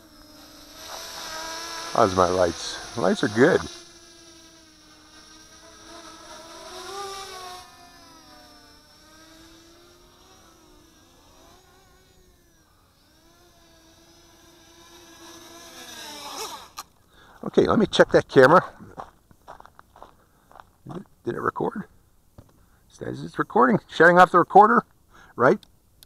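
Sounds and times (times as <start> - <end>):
quadcopter propellers whining: 0.0 - 17.3.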